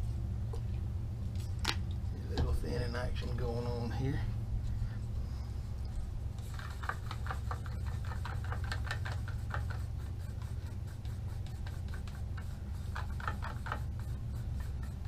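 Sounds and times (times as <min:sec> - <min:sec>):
steady low hum: 0:00.0 - 0:15.0
stirrer scraping a cup: 0:06.4 - 0:15.0.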